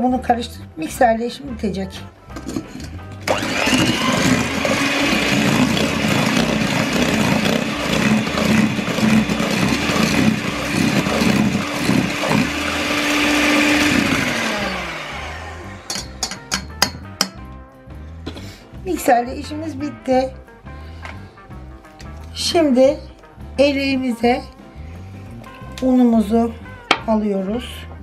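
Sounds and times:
electric hand mixer whirring: 2.4 - 16.7.

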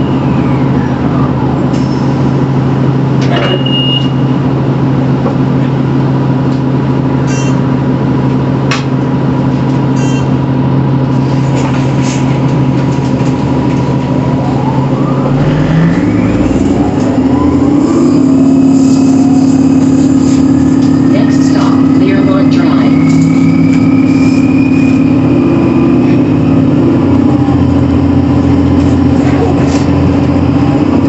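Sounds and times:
bus engine low hum: 0.0 - 31.0
electric drive whine rising: 13.8 - 28.9.

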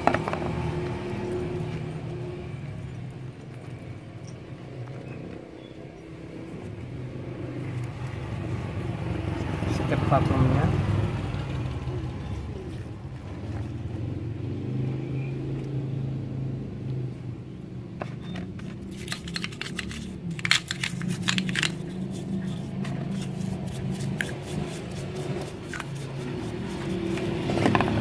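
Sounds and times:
sharp clicks of small parts: 18.8 - 21.9.

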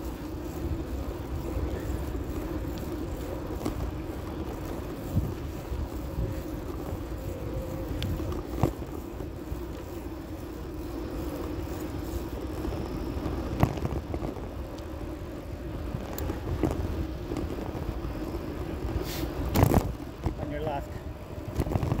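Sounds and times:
bicycle tyres rumbling on pavement: 0.0 - 22.0.

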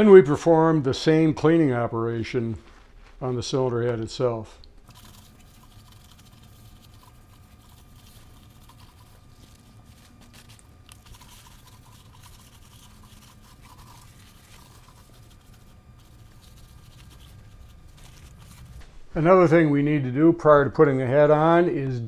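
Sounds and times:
steady low hum: 0.0 - 22.0
paper towel scrubbing metal: 4.9 - 18.9.

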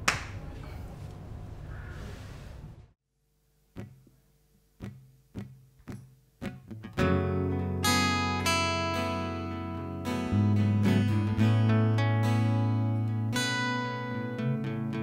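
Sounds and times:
acoustic guitars strumming: 4.8 - 15.0.

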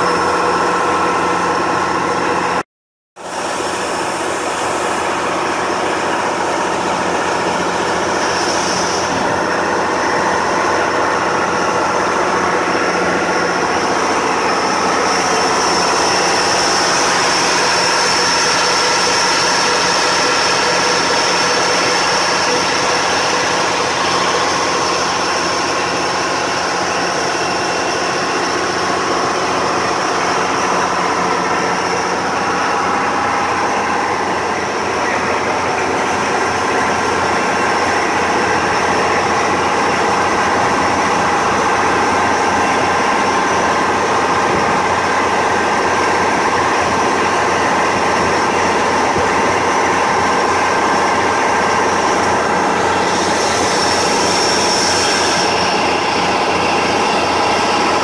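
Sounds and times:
boat engine humming: 0.0 - 2.6, 3.2 - 58.0
water rushing along hull: 3.2 - 58.0.

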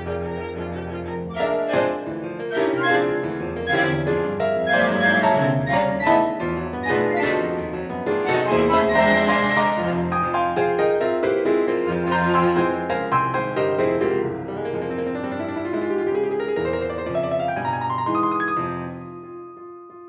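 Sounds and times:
piano: 0.0 - 20.0
chamber ensemble playing chords: 2.5 - 10.2.

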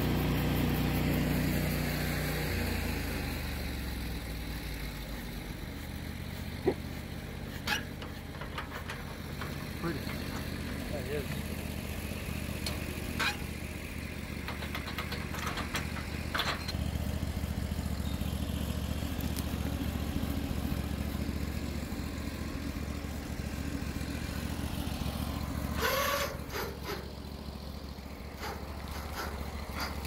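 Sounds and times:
sawmill engine running: 0.0 - 30.0
scraping clatter: 7.4 - 11.8, 12.6 - 13.7, 14.3 - 17.0, 25.6 - 27.2, 28.3 - 30.0.

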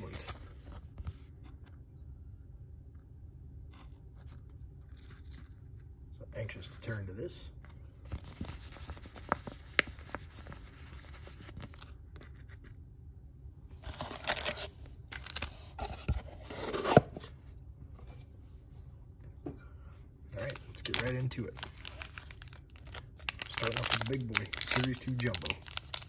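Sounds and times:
wrappers crinkling: 13.8 - 15.6, 20.3 - 26.0.

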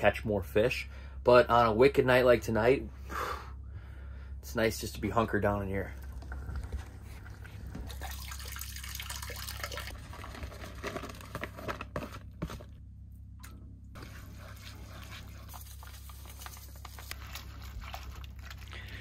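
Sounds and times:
water pouring and splashing: 5.8 - 11.4
low hum: 9.8 - 19.0.

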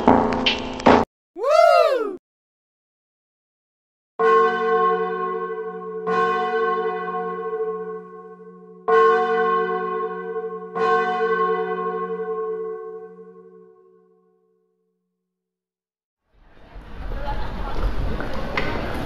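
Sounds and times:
church bell ringing: 4.2 - 13.8.

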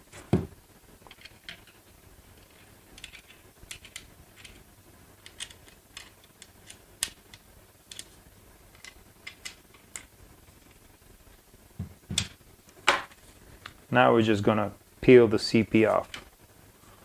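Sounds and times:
plastic parts clicking: 2.4 - 4.6, 5.2 - 10.1.

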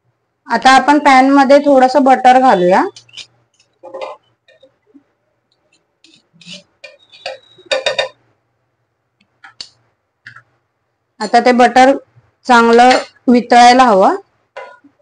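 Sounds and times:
cutlery scraping iron pan: 2.9 - 4.7, 6.0 - 8.2, 12.7 - 13.2, 14.6 - 14.9.

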